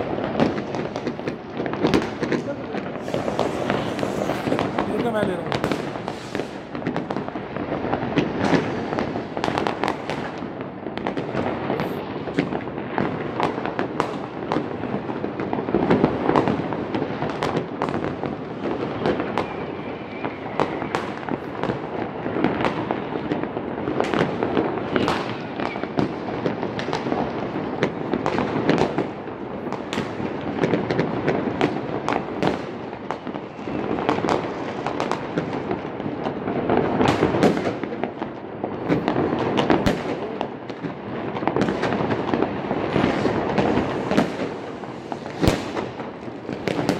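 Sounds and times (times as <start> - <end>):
fireworks and firecrackers crackling: 0.0 - 46.9.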